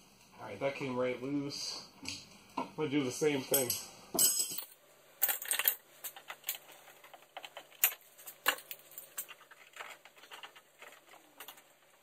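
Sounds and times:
hand tools clicking on metal: 0:03.5 - 0:03.9.

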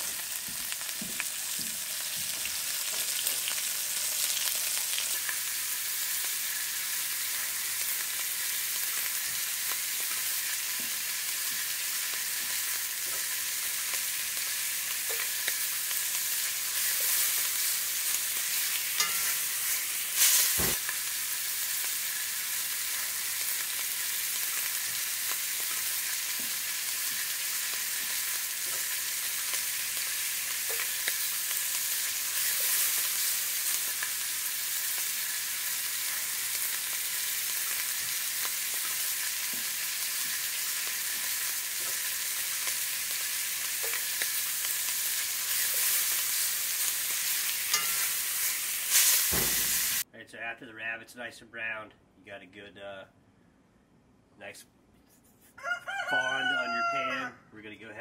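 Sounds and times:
meat sizzling in hot oil: 0:00.0 - 0:50.1
sharp knock: 0:49.3 - 0:49.8.

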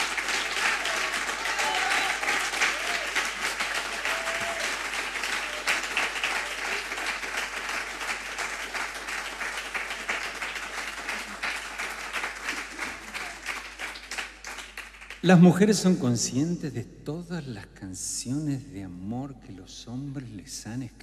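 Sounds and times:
audience applauding: 0:00.0 - 0:15.4.

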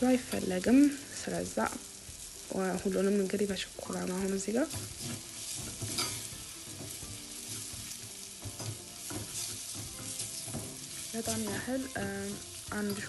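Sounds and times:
onions sizzling in oil: 0:00.0 - 0:13.0
spoon scraping pan: 0:04.7 - 0:13.0.

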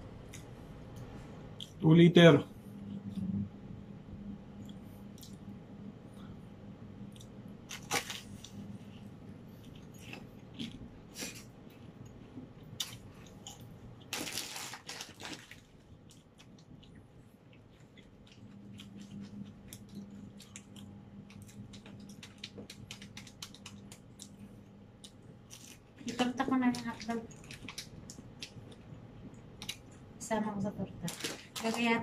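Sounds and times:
low steady hum: 0:00.0 - 0:32.0
chewing bread: 0:07.0 - 0:30.2.

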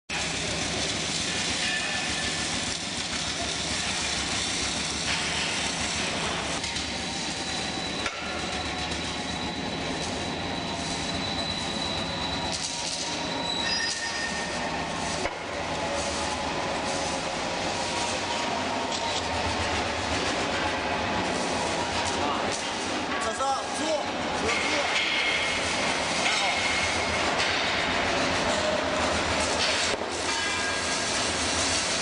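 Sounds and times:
high-pitched whining tones: 0:06.0 - 0:20.2.

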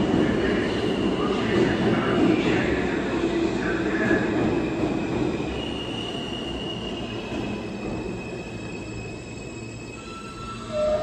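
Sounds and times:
train wheels rumbling on rails: 0:00.0 - 0:11.0
high brake squeal: 0:05.5 - 0:11.0.

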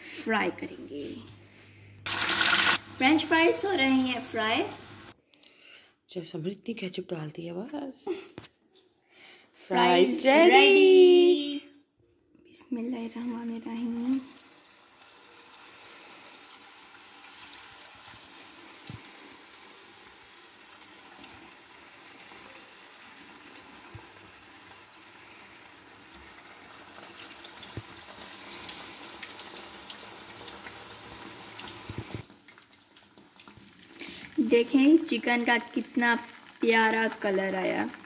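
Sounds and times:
chicken deep-frying in oil: 0:02.1 - 0:05.2, 0:13.2 - 0:38.0.

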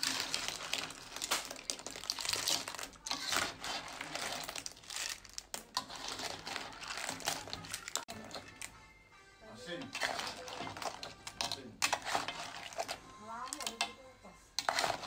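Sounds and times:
spatula stirring seafood in metal pan: 0:00.0 - 0:08.7, 0:09.7 - 0:15.0.

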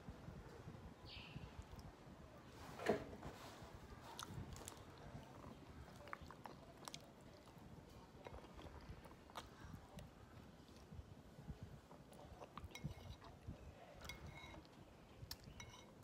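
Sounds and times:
close-up chewing of soaked bread: 0:04.0 - 0:16.0.

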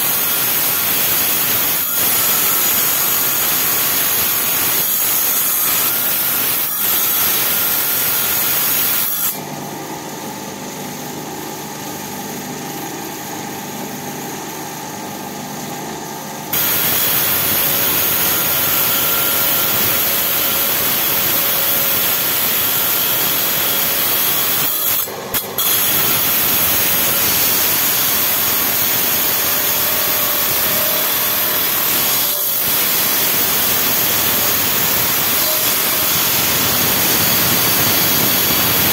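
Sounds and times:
grinder humming: 0:00.0 - 0:38.9.

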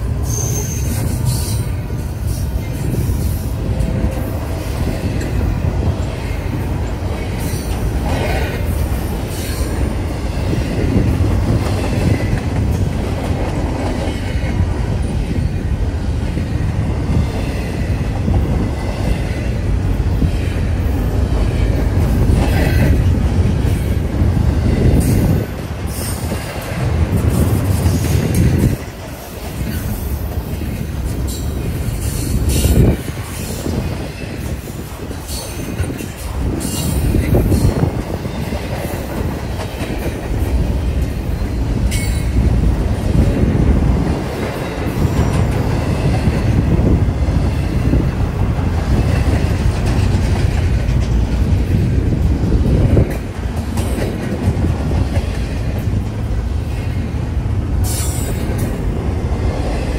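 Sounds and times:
train wheel squeals: 0:00.0 - 0:13.0, 0:14.0 - 0:42.5, 0:57.8 - 0:58.8
freight train rumbling past: 0:00.0 - 0:59.9
train wheel clatter: 0:00.0 - 0:59.9.

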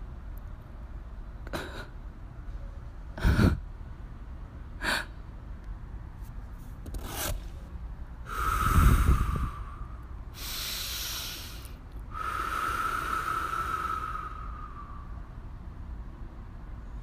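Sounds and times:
heavy breathy exhalations: 0:08.3 - 0:15.3.

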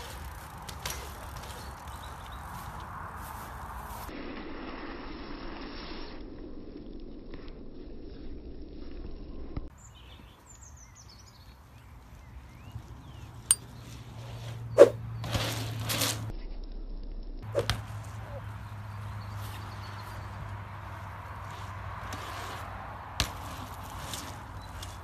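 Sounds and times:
tyres rolling on asphalt: 0:00.0 - 0:04.0, 0:11.6 - 0:16.3, 0:17.6 - 0:25.0.

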